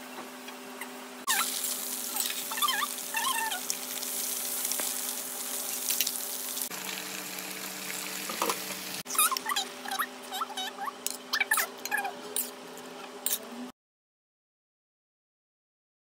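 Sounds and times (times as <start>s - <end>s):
food sizzling in hot oil: 1.3s - 9.1s.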